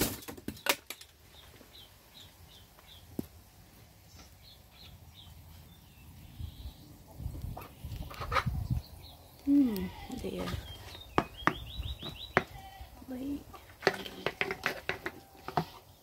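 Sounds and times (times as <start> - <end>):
small bird chirping: 4.0 - 14.2.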